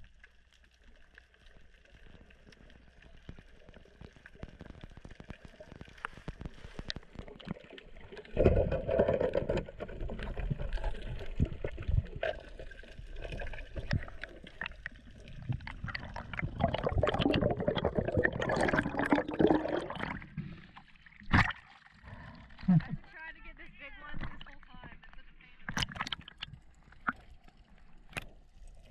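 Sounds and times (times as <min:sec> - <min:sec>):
gurgling churning water: 0:00.0 - 0:22.7, 0:25.7 - 0:28.9
underwater clicks and crackle: 0:00.0 - 0:28.9
water splash: 0:05.3 - 0:22.3, 0:25.6 - 0:27.3.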